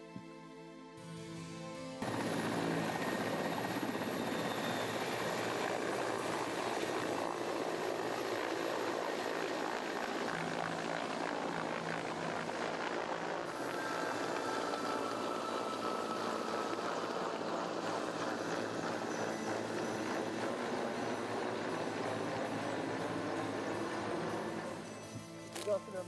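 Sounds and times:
music: 0.0s - 7.0s, 14.0s - 26.0s
helicopter flying low: 2.0s - 26.0s.

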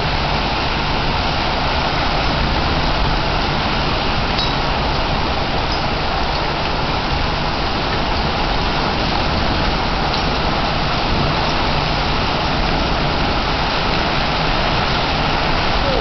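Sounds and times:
torrential rain on grass and paving: 0.0s - 16.0s.

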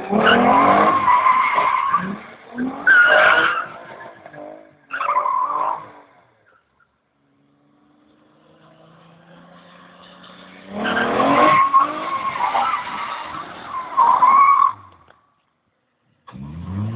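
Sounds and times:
tyres squealing and skidding: 0.0s - 7.0s, 8.6s - 15.2s
car engine revving: 7.2s - 13.9s, 16.3s - 16.9s.

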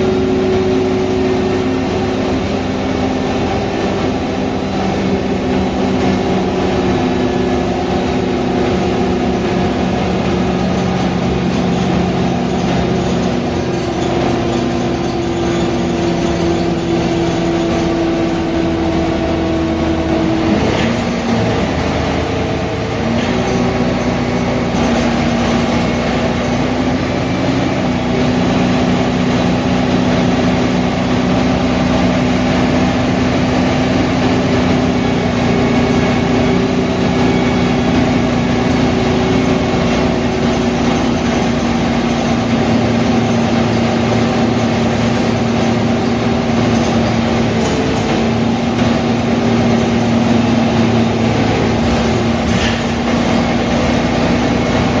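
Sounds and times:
bus diesel engine running: 0.0s - 55.0s.

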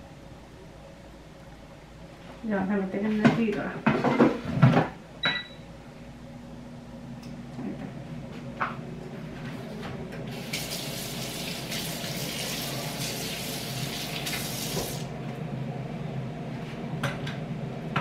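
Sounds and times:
air fryer humming: 0.0s - 18.0s
tap running into sink: 14.1s - 15.0s.

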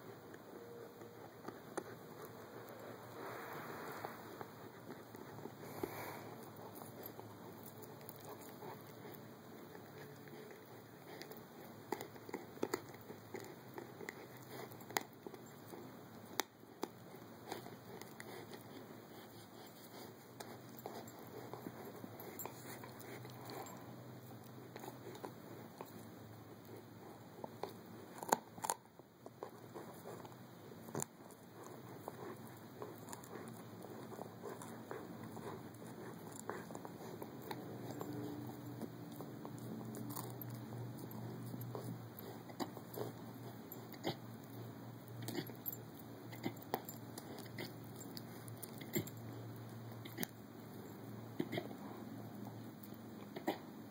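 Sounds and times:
puppy chewing: 0.0s - 53.9s.

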